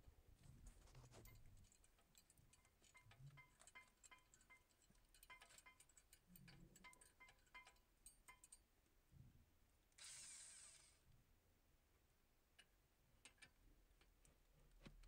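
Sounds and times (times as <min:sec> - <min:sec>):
wrench metallic ticks: 0:01.8 - 0:08.6.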